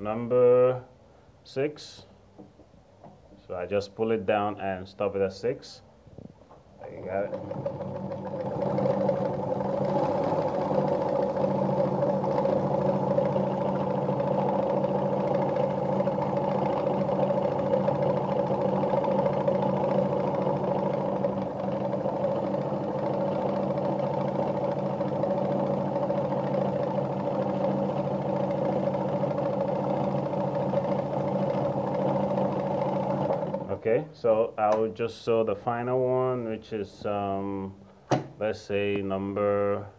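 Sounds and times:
sewing machine running: 0:07.0 - 0:33.8.

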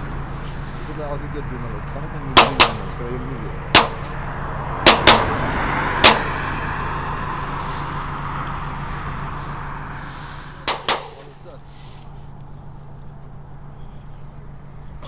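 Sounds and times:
vehicle noise rushing: 0:00.0 - 0:15.0
sharp gunshots: 0:02.4 - 0:02.9, 0:03.7 - 0:04.1, 0:04.8 - 0:05.4, 0:06.0 - 0:06.3, 0:10.7 - 0:11.3.

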